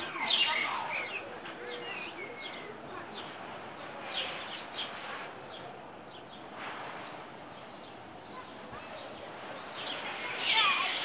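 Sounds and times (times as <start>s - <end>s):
birds chirping: 0.0s - 11.0s
outdoor background hiss: 0.0s - 11.0s.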